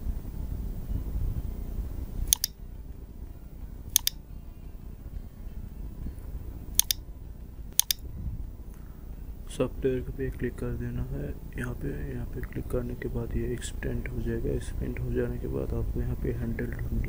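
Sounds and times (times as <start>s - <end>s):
low steady hum: 0.0s - 17.0s
computer mouse double-clicks: 2.3s - 2.6s, 4.0s - 4.2s, 6.8s - 7.0s, 7.8s - 8.0s.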